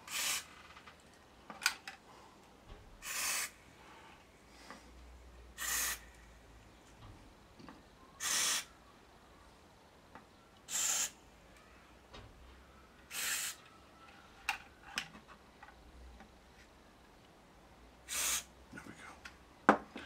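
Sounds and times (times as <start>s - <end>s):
aerosol spray hisses: 0.0s - 0.5s, 3.0s - 3.6s, 5.6s - 6.1s, 8.2s - 8.7s, 10.7s - 11.2s, 13.1s - 13.6s, 18.1s - 18.5s.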